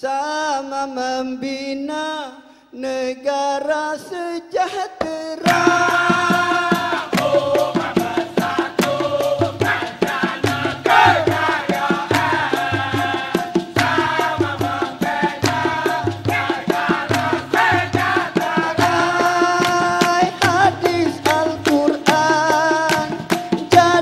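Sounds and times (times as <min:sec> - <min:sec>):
man singing lead: 0:00.0 - 0:24.0
male chorus singing: 0:05.3 - 0:24.0
rattling percussion: 0:05.4 - 0:24.0
hand clapping: 0:05.5 - 0:07.7, 0:13.3 - 0:23.8.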